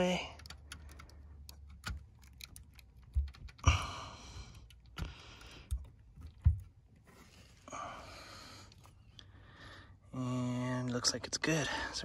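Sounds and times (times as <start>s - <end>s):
wires clicking and knocking: 0.0s - 7.0s.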